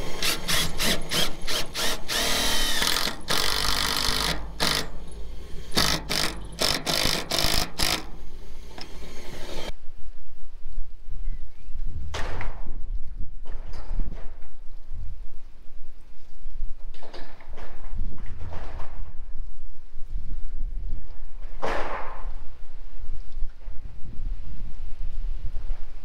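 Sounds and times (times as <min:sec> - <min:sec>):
impact driver driving screws: 0:00.0 - 0:09.7
low wind rumble: 0:07.8 - 0:26.0.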